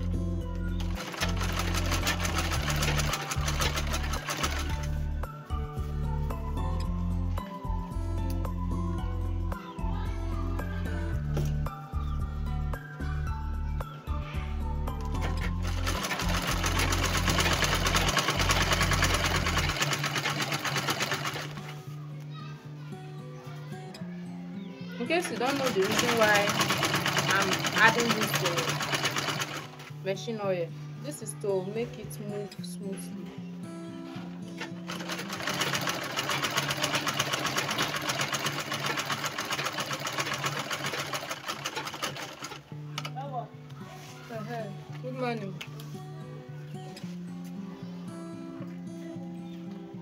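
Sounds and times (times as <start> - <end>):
sewing machine clatter: 0.8 - 4.9, 15.2 - 21.7, 25.1 - 29.9, 34.6 - 42.6.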